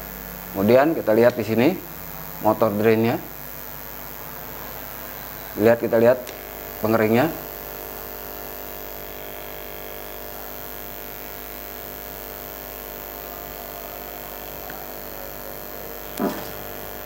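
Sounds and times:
washing machine motor humming: 0:12.6 - 0:17.0.

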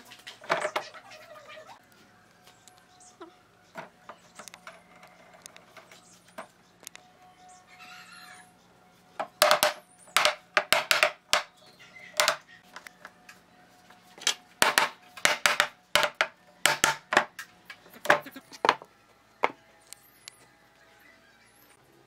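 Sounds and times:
mallet knocking on wood: 0:09.4 - 0:11.5, 0:14.6 - 0:17.3.

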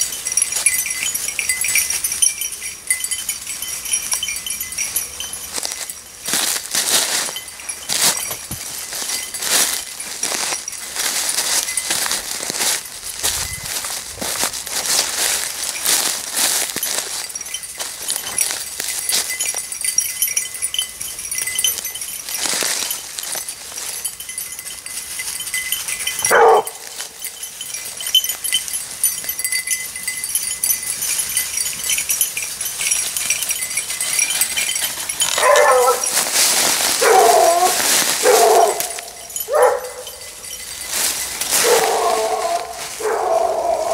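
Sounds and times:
faint high tinkling: 0:00.0 - 0:43.9
footsteps through dry leaves: 0:00.0 - 0:43.9
light metallic clinks: 0:00.0 - 0:43.9
hound baying: 0:26.2 - 0:27.2, 0:34.3 - 0:36.3, 0:36.9 - 0:40.4, 0:41.5 - 0:43.9.

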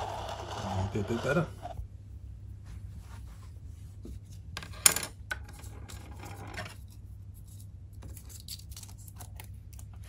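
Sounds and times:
rubbing and scraping on plastic cup: 0:00.0 - 0:01.8.

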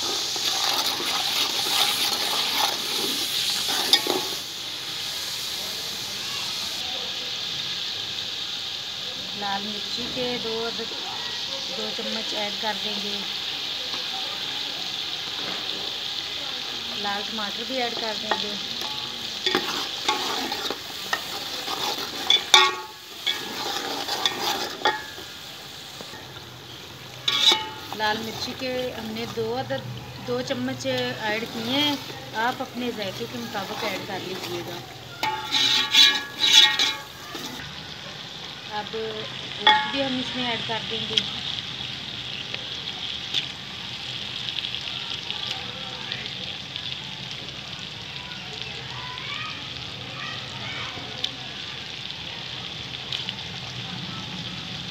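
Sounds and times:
ladle scraping a pot: 0:00.0 - 0:04.4, 0:18.3 - 0:25.3, 0:27.3 - 0:28.6, 0:33.2 - 0:37.6
frying sizzle: 0:00.0 - 0:54.9.

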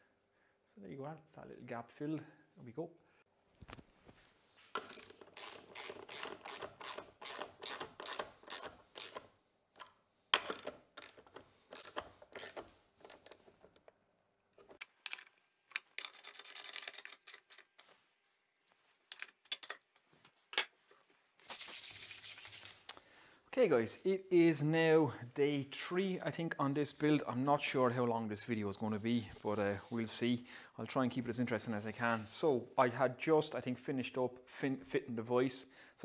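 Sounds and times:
ratchet wrench clicking: 0:04.8 - 0:09.3, 0:10.4 - 0:13.4
short scraping rub: 0:28.9 - 0:30.4.

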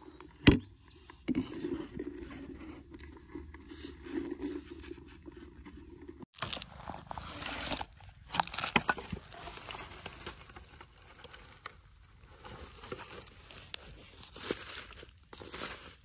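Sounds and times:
dry leaves and twigs rustling: 0:06.4 - 0:16.0
twigs cracking: 0:06.4 - 0:16.0.

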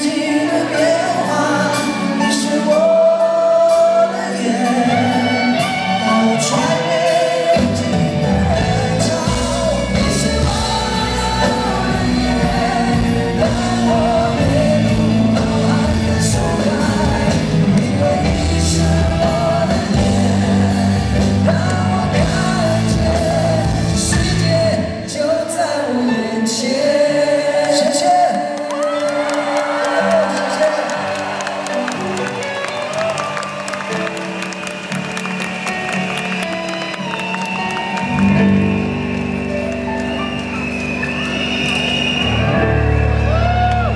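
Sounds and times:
man singing: 0:00.0 - 0:32.0
live pop-rock band: 0:00.0 - 0:43.9.

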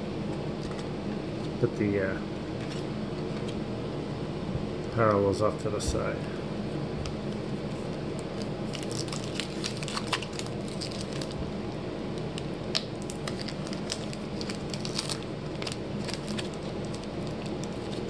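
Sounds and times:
plastic wrapper crinkling: 0:08.4 - 0:11.4, 0:12.7 - 0:18.0.

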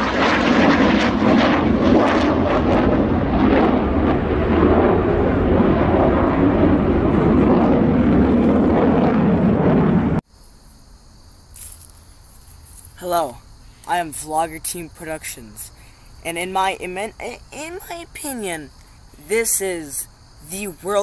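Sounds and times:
jet plane flying past: 0:00.0 - 0:10.2.

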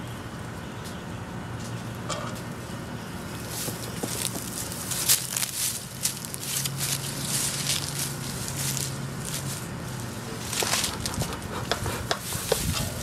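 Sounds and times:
feet rustling through leaves: 0:03.4 - 0:11.1.

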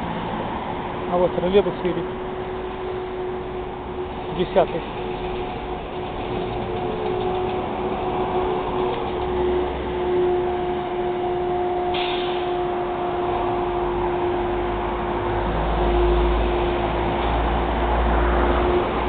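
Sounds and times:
street traffic: 0:00.0 - 0:19.0
trolleybus electric hum: 0:00.0 - 0:19.0.

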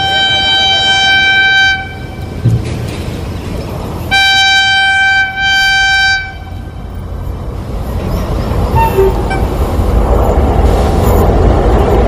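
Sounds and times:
locomotive horn blasts: 0:00.0 - 0:02.3, 0:04.1 - 0:06.9, 0:08.8 - 0:09.5
low rumble of train: 0:00.0 - 0:12.0.

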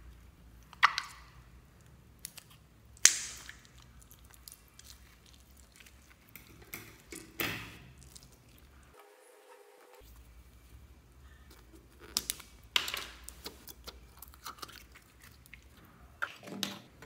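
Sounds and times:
slime squishing: 0:00.0 - 0:09.0, 0:10.0 - 0:17.0.

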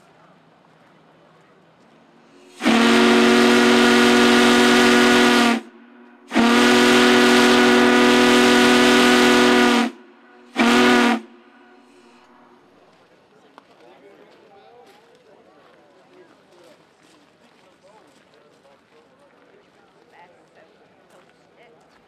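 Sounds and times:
steam hissing: 0:02.2 - 0:05.7
steam whistle blasts: 0:02.4 - 0:11.9.

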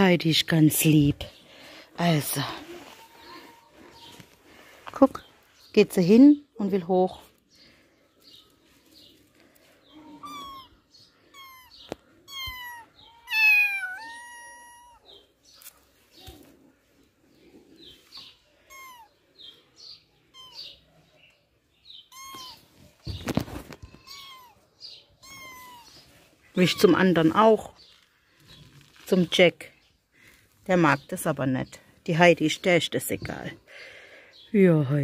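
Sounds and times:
rustling handling noise: 0:02.2 - 0:05.7, 0:08.1 - 0:09.9, 0:22.2 - 0:24.4, 0:25.2 - 0:29.4
kitten mewing: 0:10.0 - 0:15.1, 0:18.6 - 0:19.2, 0:20.3 - 0:20.8, 0:22.1 - 0:22.7, 0:24.0 - 0:24.6, 0:25.2 - 0:26.0.

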